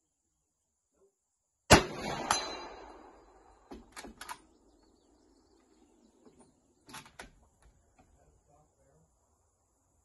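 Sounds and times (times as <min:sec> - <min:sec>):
rifle shot echoing: 0:01.7 - 0:04.8.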